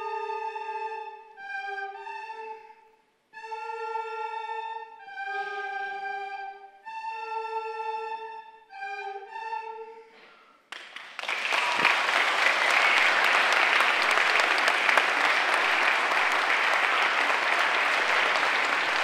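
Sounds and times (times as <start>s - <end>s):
recorder and flute ensemble: 0.0s - 19.0s
audience applause: 10.7s - 19.0s.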